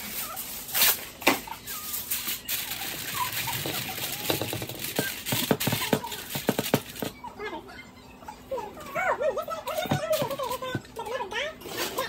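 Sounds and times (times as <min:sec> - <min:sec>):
aluminum foil tearing and crinkling: 0:00.0 - 0:07.0.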